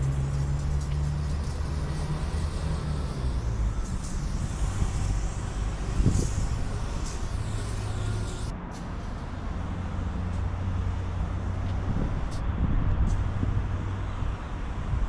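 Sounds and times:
aerosol spray can hissing: 0.0s - 8.5s.

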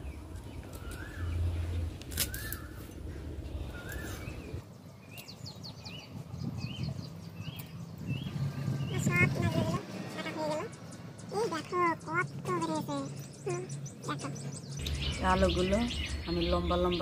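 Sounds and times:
bird calling: 0.0s - 9.6s.

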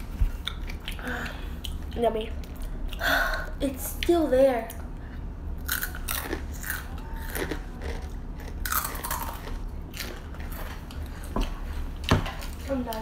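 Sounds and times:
chips being bitten and chewed: 5.6s - 11.0s.

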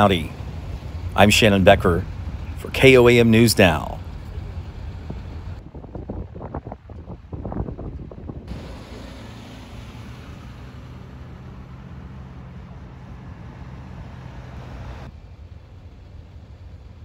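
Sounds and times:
diesel truck engines running: 0.0s - 17.0s
road and wind noise: 0.0s - 17.0s.

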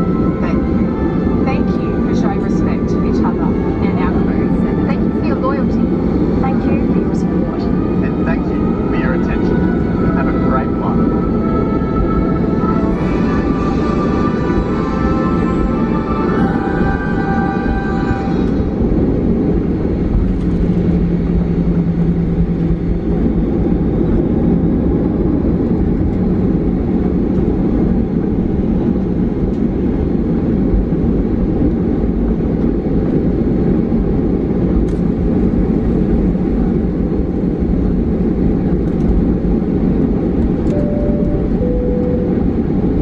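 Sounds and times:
aircraft cabin rumble: 0.0s - 43.0s
faint hum: 32.6s - 43.0s.

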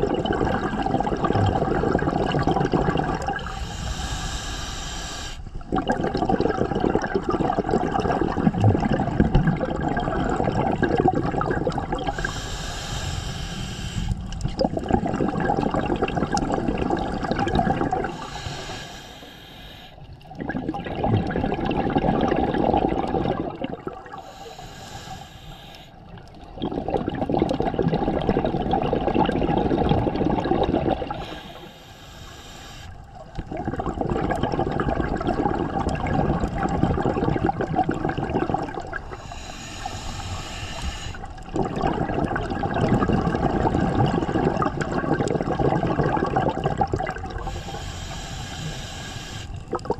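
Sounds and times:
exhaled bubbles gurgling: 0.0s - 4.5s, 5.4s - 49.9s
regulator inhalation hiss: 3.5s - 5.5s, 12.1s - 14.2s, 18.1s - 20.1s, 24.2s - 26.0s, 31.2s - 33.0s, 39.1s - 41.3s, 47.4s - 49.6s.

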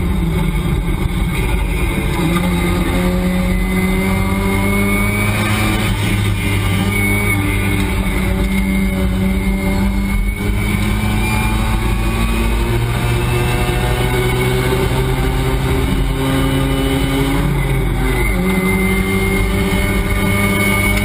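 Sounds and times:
race car engine: 0.0s - 21.0s.

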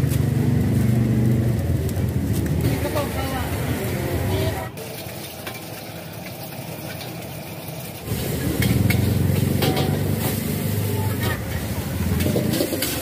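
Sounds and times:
egg sizzling in a wok: 4.8s - 13.0s
metal spatula clanking on wok: 8.6s - 10.4s, 11.1s - 13.0s.

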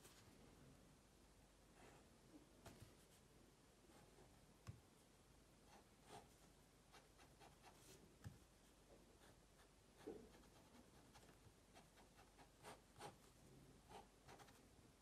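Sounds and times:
pen scratching on paper: 6.0s - 8.0s, 10.0s - 13.3s, 13.9s - 14.6s.

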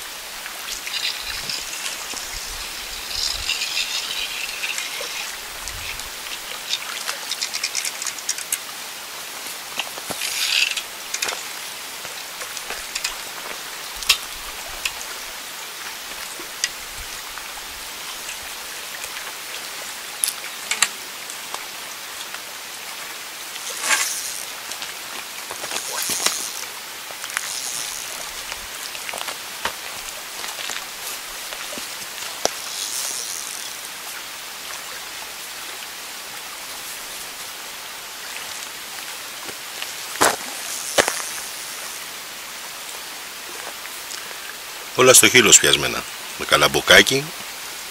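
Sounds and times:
small waves lapping on rocks: 0.2s - 42.6s
short hissing bursts: 0.5s - 6.5s, 25.8s - 28.5s, 32.5s - 33.8s.

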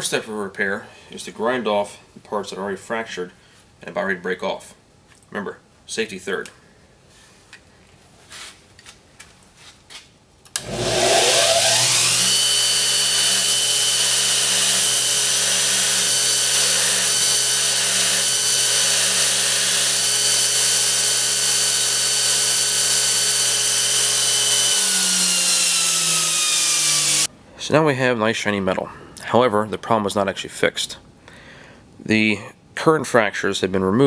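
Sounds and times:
electric grinder motor whining: 10.6s - 27.3s
grinder grinding steel: 10.6s - 27.3s.

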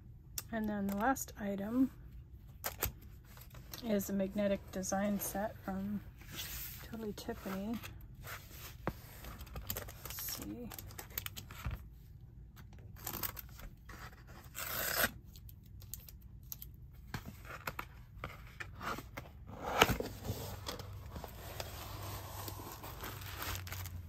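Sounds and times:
packaging tearing: 14.3s - 15.1s, 21.6s - 24.0s
packaging rustling: 20.0s - 24.0s.

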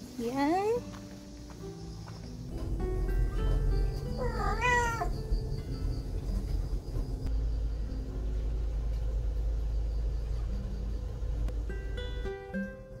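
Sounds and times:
low rumble: 2.3s - 12.0s
cat meowing: 4.1s - 5.2s.

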